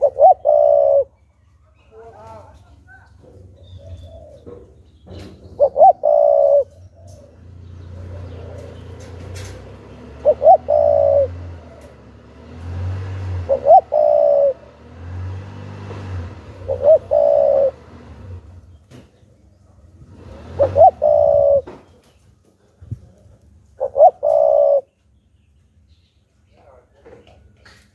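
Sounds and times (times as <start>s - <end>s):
dove cooing: 0.0s - 1.2s, 3.2s - 12.0s, 13.1s - 14.8s, 16.4s - 18.3s, 20.3s - 22.0s, 23.8s - 24.9s.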